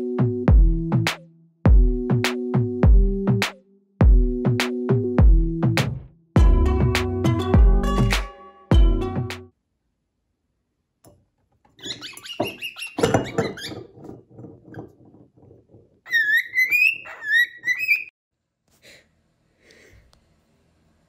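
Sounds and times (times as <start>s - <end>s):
cockatiel whistling: 16.1s - 18.1s.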